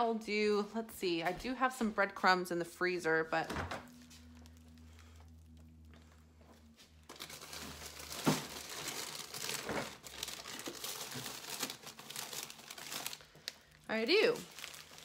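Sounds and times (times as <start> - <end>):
low steady hum: 0.0 - 15.0
plastic bags crinkling: 3.9 - 15.0.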